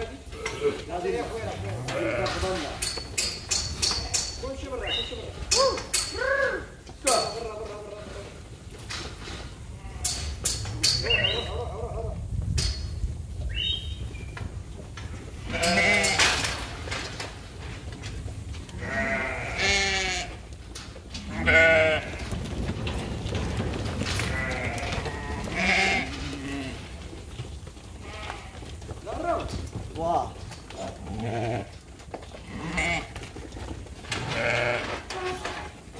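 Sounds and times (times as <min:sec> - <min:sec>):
sheep bleating: 0:01.5 - 0:02.6, 0:15.4 - 0:16.2, 0:18.8 - 0:20.4, 0:21.2 - 0:22.2, 0:24.2 - 0:26.9, 0:30.8 - 0:31.8, 0:32.4 - 0:33.1, 0:34.2 - 0:35.3.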